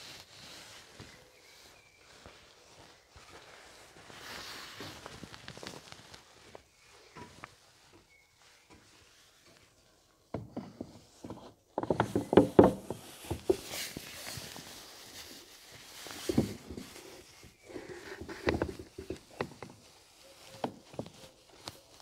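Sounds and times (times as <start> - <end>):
rustling: 0.0 - 22.0
plastic cover knocks and clacks: 10.4 - 13.6.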